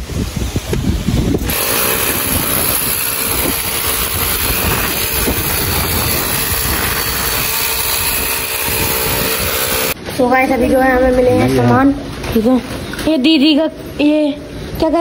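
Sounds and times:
electric drill running: 1.4 - 10.0.

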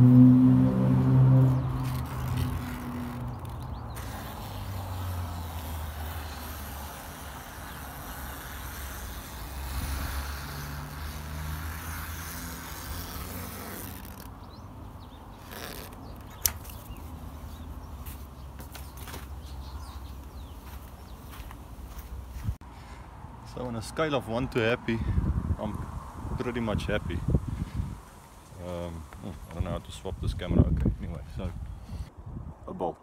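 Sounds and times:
low hum: 0.0 - 3.4.

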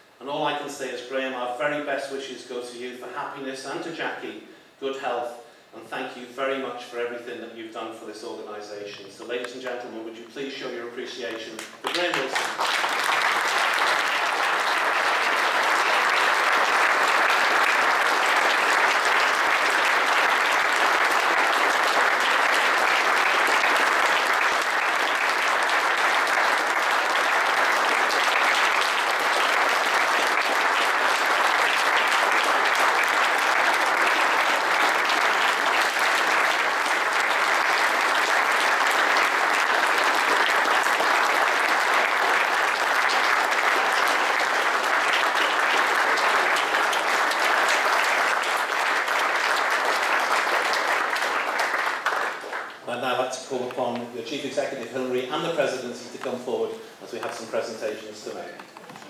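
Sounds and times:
audience applauding: 11.6 - 52.9, 57.1 - 57.6.

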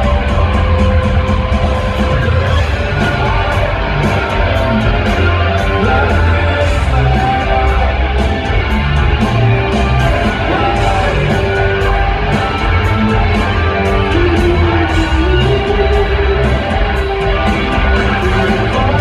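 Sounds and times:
rock band playing live: 0.0 - 19.0
steady drum beat: 0.0 - 19.0.

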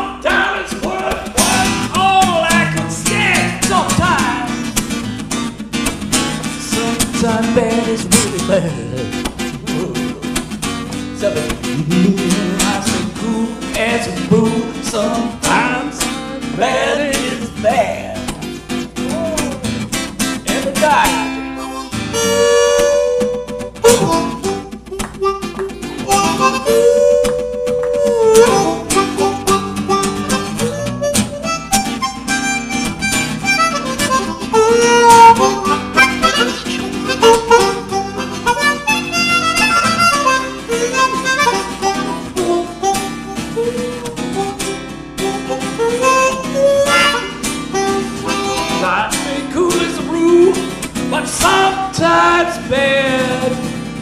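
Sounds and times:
strummed acoustic guitar: 0.0 - 54.0
blues harmonica solo: 18.2 - 52.0.

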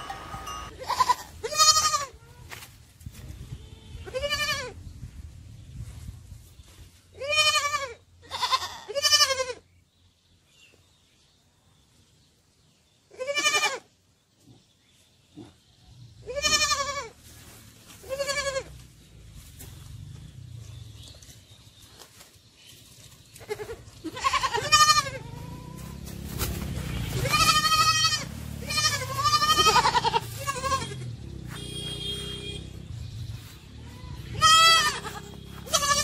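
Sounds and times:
sheep and lambs bleating: 0.0 - 2.2, 3.8 - 4.8, 7.2 - 9.6, 13.1 - 13.9, 16.2 - 17.2, 18.0 - 18.8, 23.4 - 26.0, 26.9 - 32.6, 33.7 - 36.0.

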